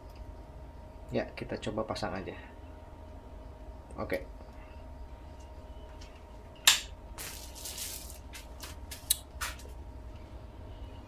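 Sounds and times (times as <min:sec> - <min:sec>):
faint steady hum: 0:00.0 - 0:11.0
rustling: 0:07.2 - 0:09.6.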